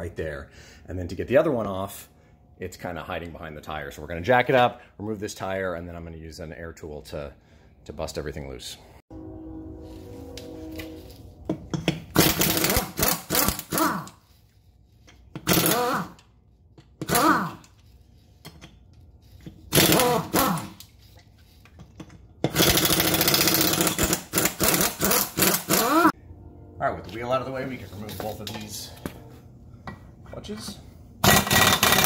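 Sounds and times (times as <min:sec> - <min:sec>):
pneumatic impact wrench hammering: 0:11.8 - 0:14.2, 0:15.3 - 0:16.2, 0:16.9 - 0:17.7, 0:19.5 - 0:20.8, 0:22.4 - 0:26.1, 0:31.2 - 0:32.0.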